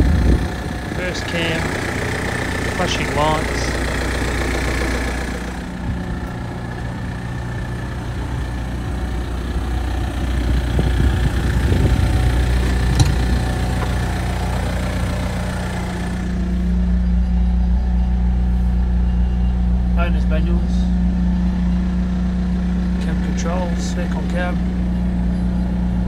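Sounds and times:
street sweeper engine idling: 0.0 - 26.0
sharp click: 12.9 - 13.2.

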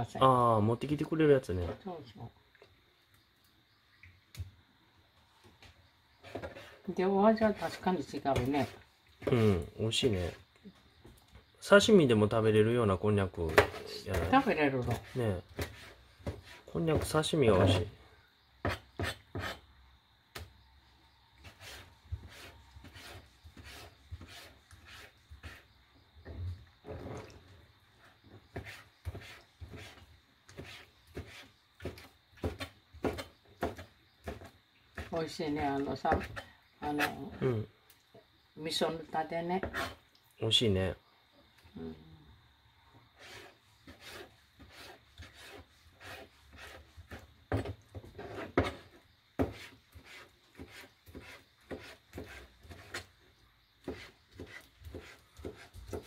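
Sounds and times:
knife chopping on cutting board: 49.4 - 53.0, 53.8 - 56.0.

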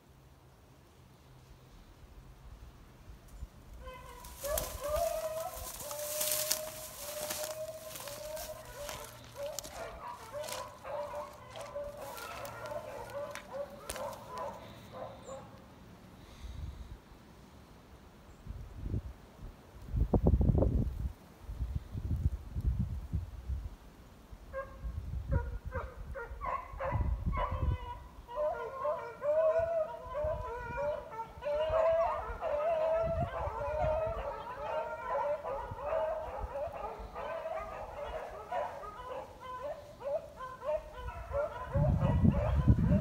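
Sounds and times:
dogs baying: 3.8 - 15.6, 25.4 - 43.0
wind buffeting microphone: 31.5 - 34.3, 40.8 - 43.0.

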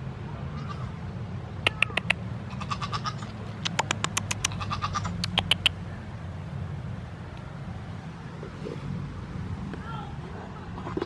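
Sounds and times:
bird harsh clicking calls: 1.7 - 2.2, 3.6 - 5.8.

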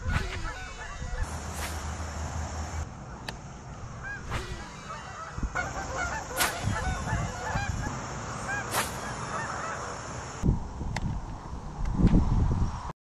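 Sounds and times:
flock of birds calling: 0.0 - 1.9, 4.0 - 10.4.

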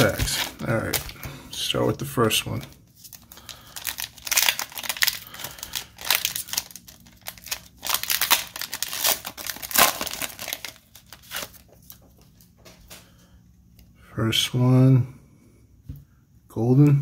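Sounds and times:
foil wrapper crinkling and tearing: 0.0 - 12.3.

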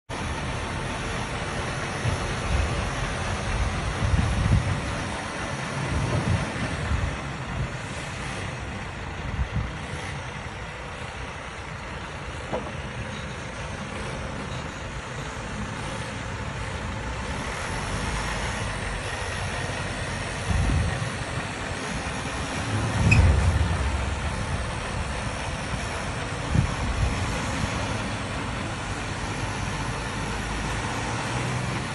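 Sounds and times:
diesel truck engine running: 0.1 - 31.9
low thumps: 22.8 - 25.9.

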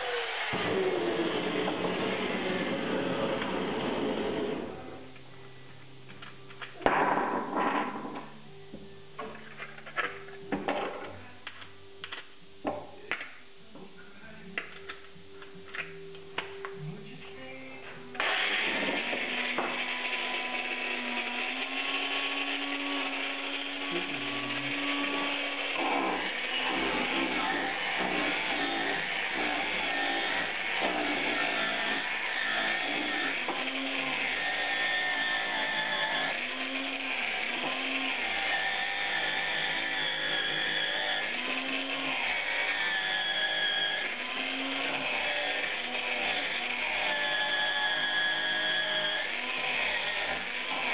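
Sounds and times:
angle grinder running: 0.0 - 4.7, 18.2 - 50.9.

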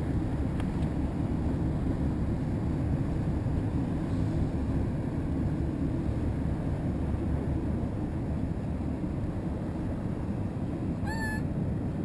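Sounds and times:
wind: 0.0 - 12.0
boat engine rumbling: 9.0 - 12.0
high-pitched chirp: 11.1 - 11.4.

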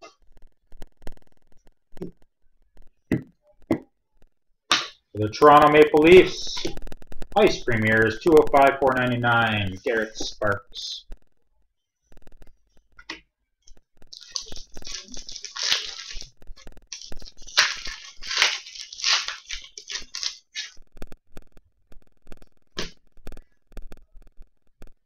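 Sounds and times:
crinkly wrapper tearing open: 14.1 - 20.8.

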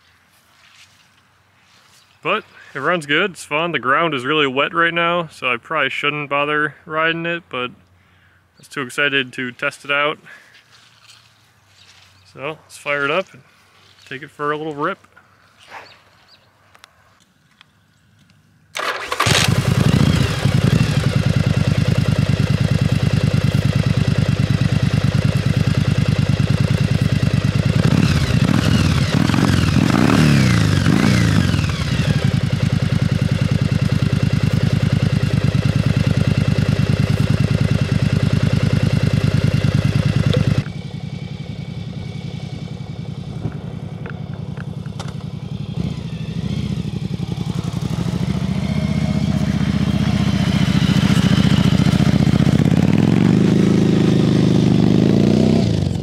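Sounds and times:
motorcycle engine running: 18.8 - 56.0.

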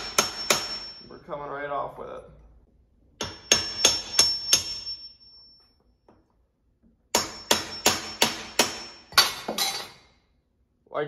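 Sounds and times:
hammer tapping a chisel: 3.2 - 5.0
high metallic ring: 3.2 - 6.0.

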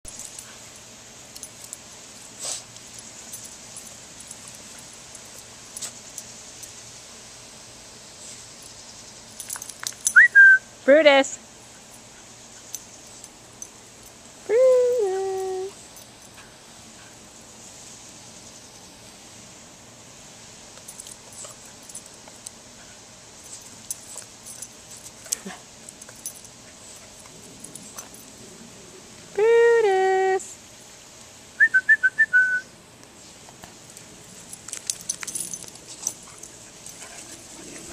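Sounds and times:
metallic jingles and clicks: 0.0 - 6.8, 8.6 - 10.3, 20.8 - 22.6, 23.4 - 28.4, 33.9 - 37.9
hose sprinkler spraying water: 0.1 - 32.2.

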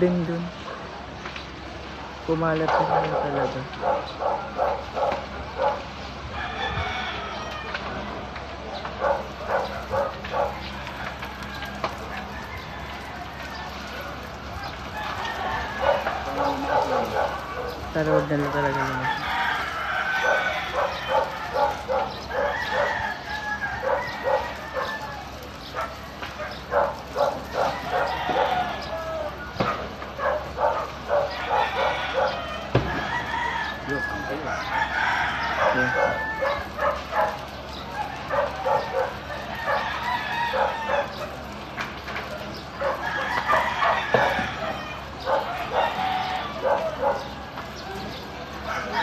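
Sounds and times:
rooster crowing: 6.3 - 8.0, 9.0 - 17.8, 18.6 - 25.7, 26.7 - 29.6, 30.2 - 41.4, 42.8 - 47.5, 48.1 - 49.0
dog yipping: 29.6 - 32.4, 35.6 - 39.8, 46.6 - 47.3.

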